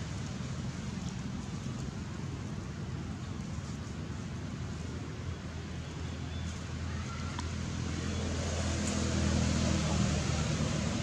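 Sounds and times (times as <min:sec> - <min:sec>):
vehicle engine hum: 0:00.0 - 0:11.0.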